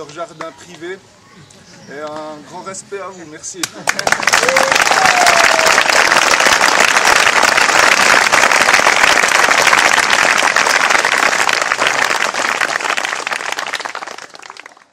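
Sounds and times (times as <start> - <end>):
audience applauding: 3.8 - 14.9.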